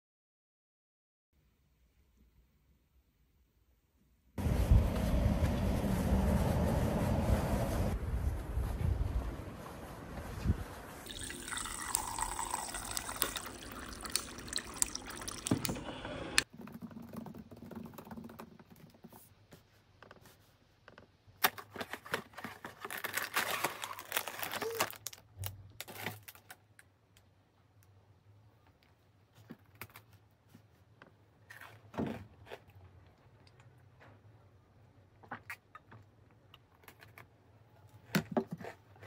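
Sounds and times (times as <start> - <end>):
outdoor ambient noise: 1.4 - 39.0
plastic wrapper crinkling: 21.7 - 26.9.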